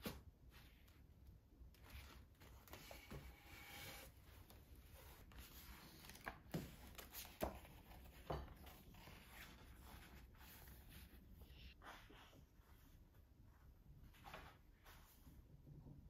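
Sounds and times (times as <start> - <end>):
book pages turning: 1.8 - 11.7.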